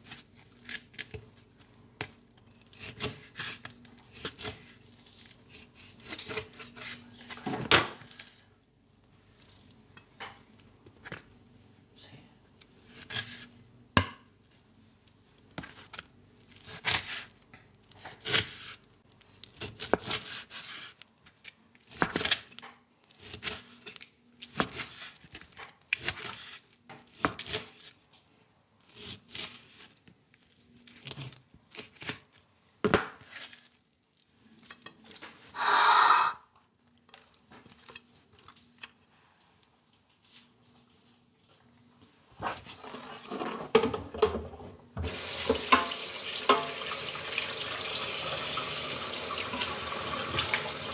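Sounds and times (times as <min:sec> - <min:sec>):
knife slicing meat: 0:19.6 - 0:21.0.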